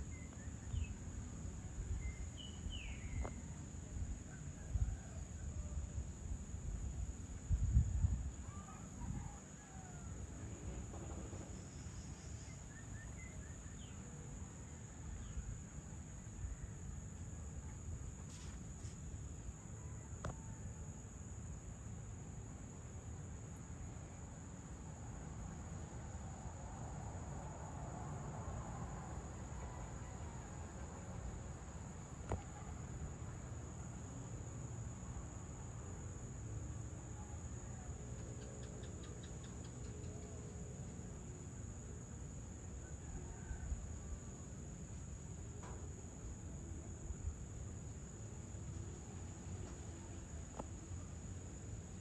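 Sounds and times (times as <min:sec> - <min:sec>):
faint low rumble: 0:00.0 - 0:16.8
crickets trilling: 0:00.0 - 0:52.0.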